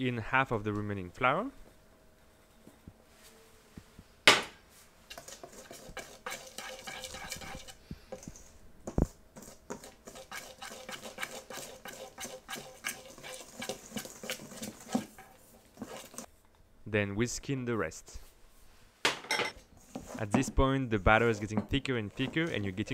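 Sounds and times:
whisk clinking against bowl: 5.1 - 8.4, 9.4 - 16.3.

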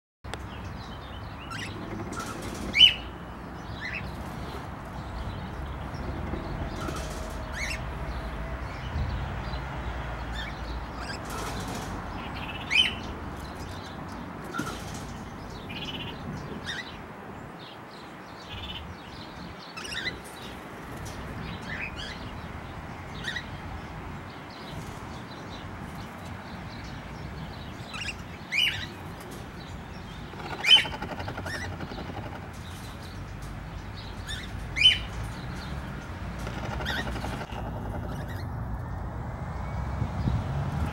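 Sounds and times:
cockatiels calling sharply: 30.3 - 32.3, 36.5 - 38.5.

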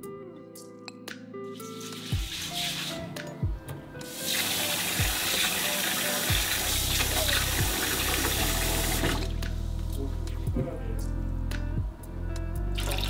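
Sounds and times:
soft background music: 0.0 - 13.0
tap water running into bowl: 1.6 - 3.0, 4.1 - 9.4.

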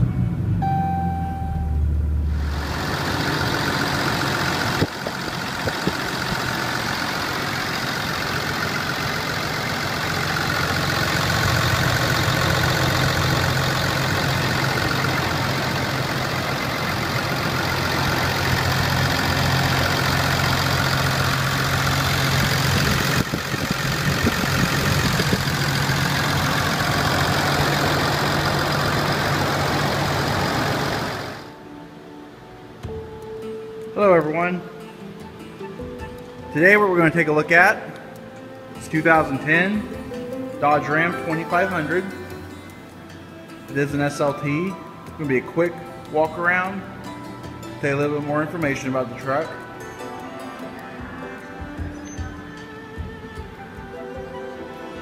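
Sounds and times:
diesel engine idling: 0.0 - 31.6.

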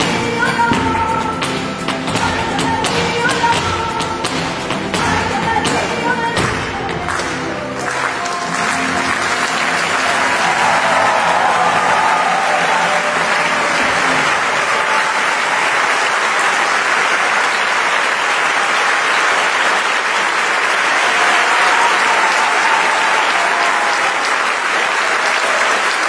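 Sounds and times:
audience applauding: 5.6 - 26.0.

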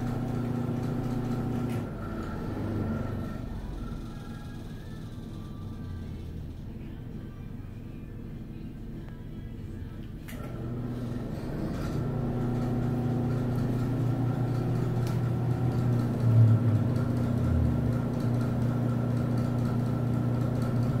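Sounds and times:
fan rattling: 0.0 - 5.3, 10.5 - 21.0
ceiling exhaust fan humming: 0.0 - 21.0.

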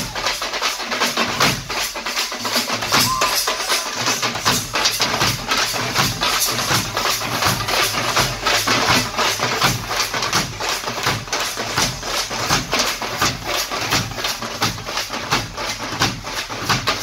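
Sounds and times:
frame drums beaten with sticks: 0.0 - 17.0.

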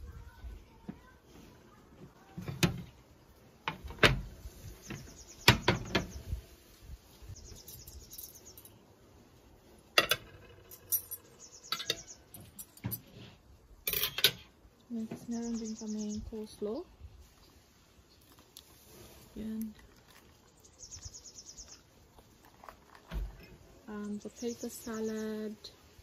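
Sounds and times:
cutlery rattling: 10.0 - 13.0, 13.9 - 14.4.

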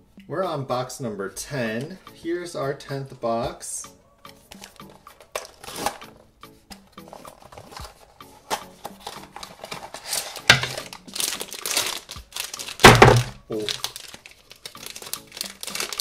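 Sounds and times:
wrapper crinkling and rustling: 4.5 - 6.2, 7.0 - 16.0
dull thunk: 12.8 - 13.4.

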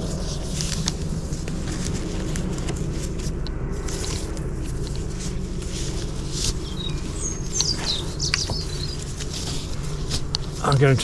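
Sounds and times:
steady low hum: 0.0 - 11.0
strap webbing rustling and clicking: 0.0 - 11.0
bird chirping: 6.2 - 10.1.

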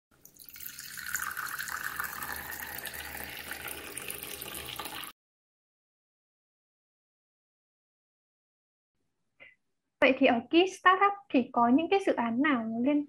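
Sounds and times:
coffee pouring into cup: 0.2 - 5.1.

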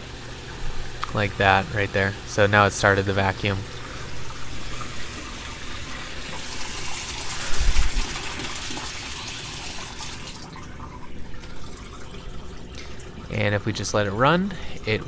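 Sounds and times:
water splashing into tank: 3.6 - 13.4.

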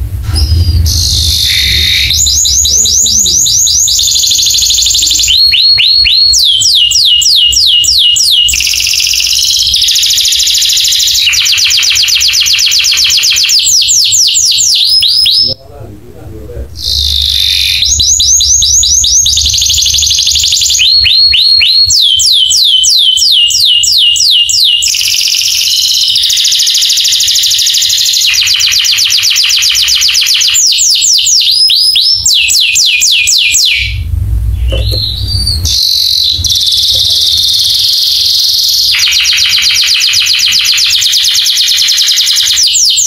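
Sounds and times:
canary singing: 0.0 - 15.6, 16.7 - 43.0.

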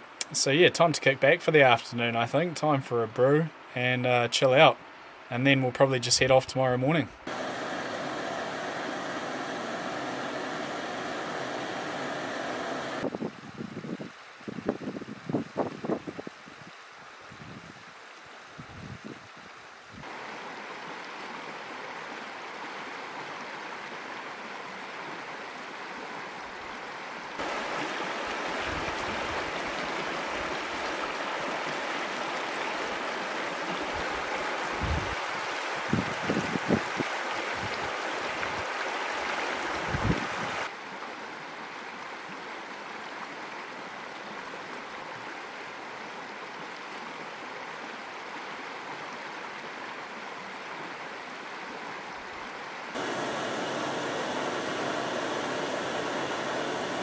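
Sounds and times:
river rushing over stones: 7.3 - 13.1, 20.0 - 24.2, 27.4 - 40.8, 53.0 - 57.0.

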